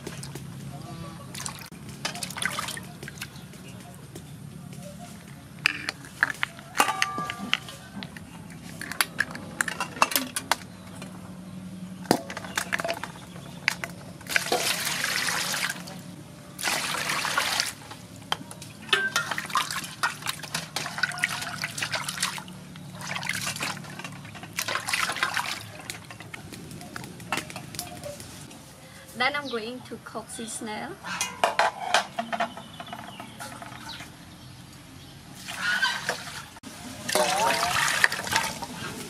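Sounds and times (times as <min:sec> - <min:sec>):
water pouring into metal basin: 0:14.3 - 0:16.0, 0:16.6 - 0:17.8, 0:18.9 - 0:26.2, 0:35.4 - 0:38.7
snails sloshed in water: 0:37.0 - 0:38.9.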